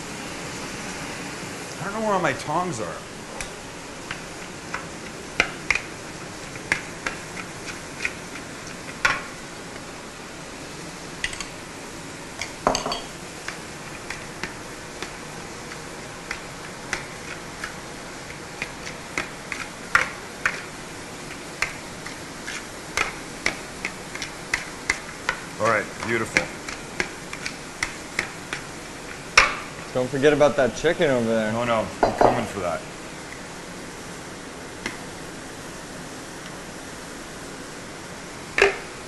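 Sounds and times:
metal tongs clinking on glass bowl: 0:12.7 - 0:13.1.

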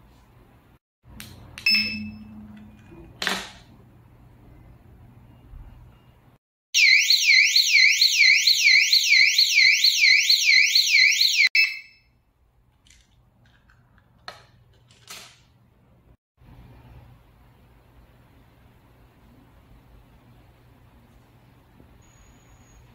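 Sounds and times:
electronic alarm siren wailing: 0:06.8 - 0:12.0.

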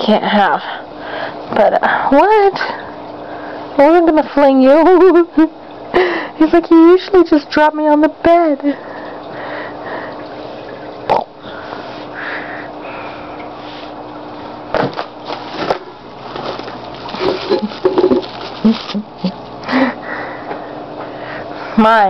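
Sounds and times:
rustling of camera and bedding: 0:14.8 - 0:19.1.

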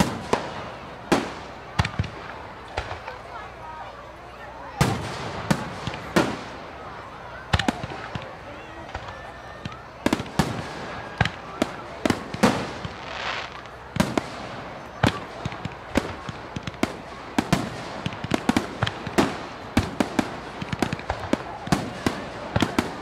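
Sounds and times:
fireworks bangs and pops: 0:00.0 - 0:03.6, 0:04.7 - 0:23.0
crackling hiss: 0:08.9 - 0:23.0.

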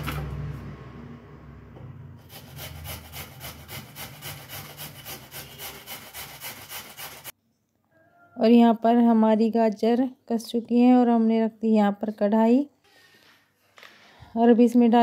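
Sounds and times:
carrot rasping on box grater: 0:02.2 - 0:07.3.

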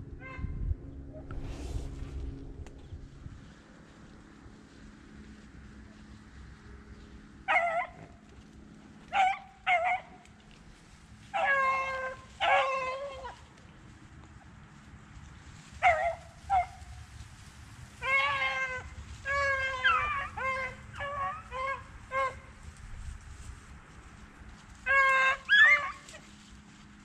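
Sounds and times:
hounds baying and barking: 0:07.4 - 0:08.2, 0:09.0 - 0:10.2, 0:11.3 - 0:13.5, 0:15.8 - 0:16.9, 0:18.0 - 0:22.7, 0:24.8 - 0:26.4.

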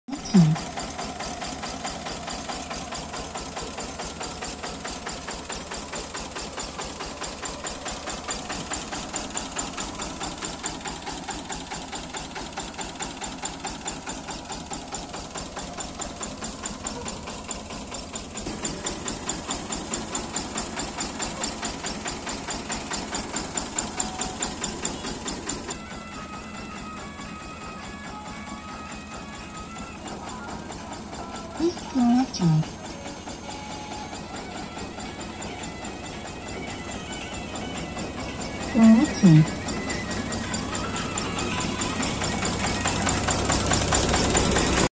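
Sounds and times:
diesel engine running: 0:00.1 - 0:44.9
music: 0:23.4 - 0:44.8.

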